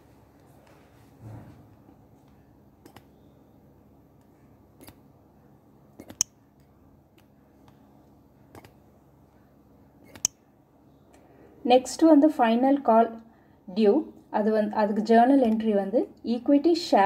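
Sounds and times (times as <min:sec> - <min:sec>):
fingertip tapping touchscreen: 0:02.8 - 0:03.2, 0:06.0 - 0:07.8, 0:10.0 - 0:10.4.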